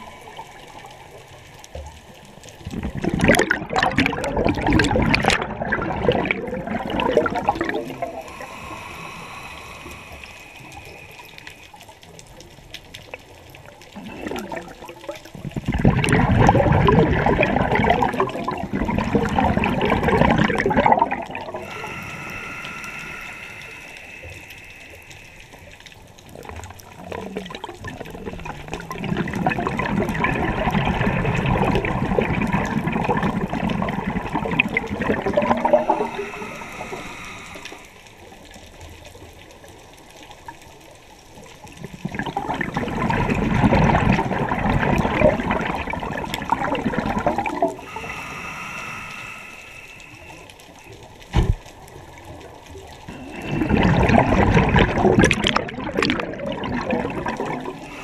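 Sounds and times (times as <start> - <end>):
exhaled bubbles gurgling: 0.0 - 58.0
inhalations through a regulator: 7.0 - 12.0, 19.6 - 25.9, 34.4 - 38.4, 47.0 - 50.9, 53.1 - 54.4, 57.6 - 58.0.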